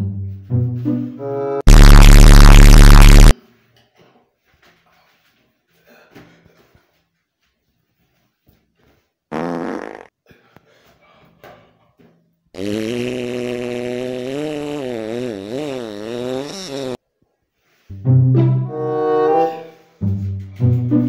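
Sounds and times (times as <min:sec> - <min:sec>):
comic fart sounds: 0:01.7 - 0:03.3, 0:09.3 - 0:10.1, 0:12.6 - 0:17.0.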